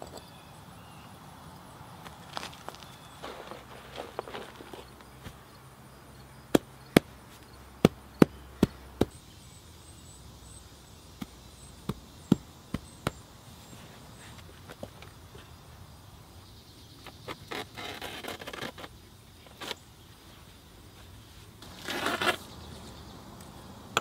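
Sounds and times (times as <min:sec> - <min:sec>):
hands patting soil: 0:02.0 - 0:05.7.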